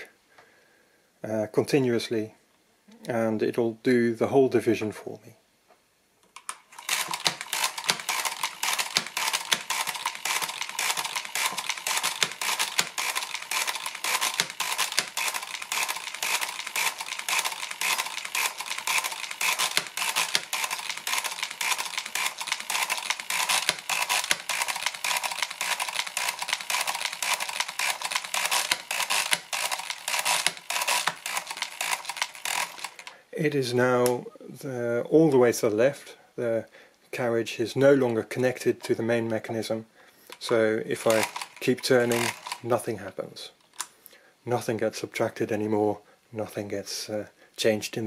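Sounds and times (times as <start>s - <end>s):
mechanical calculator gear clatter: 6.4s - 33.1s, 40.4s - 42.8s.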